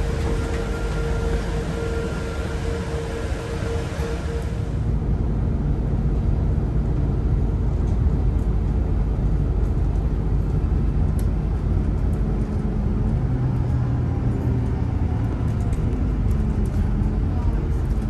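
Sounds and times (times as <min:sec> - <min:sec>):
bus engine and road rumble: 0:00.0 - 0:18.0.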